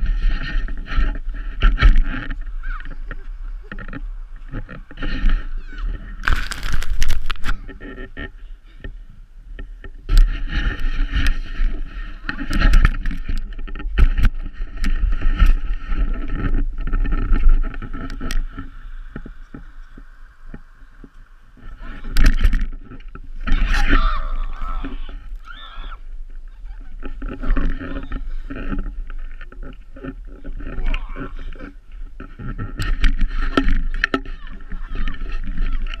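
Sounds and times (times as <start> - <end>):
wind buffeting microphone: 0.0 - 36.0
snow scraping under body: 6.1 - 7.6.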